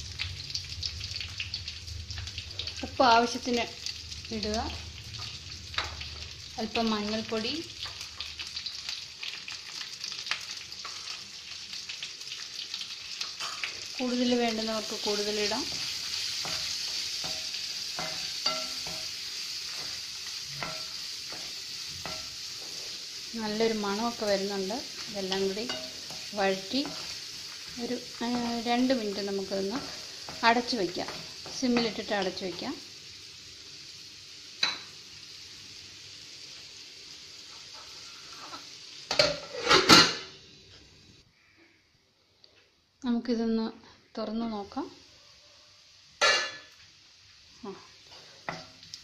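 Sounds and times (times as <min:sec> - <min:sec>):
onions sizzling in a pan: 0:00.0 - 0:41.6, 0:43.1 - 0:49.0
spatula scraping and knocking pan: 0:15.6 - 0:22.4.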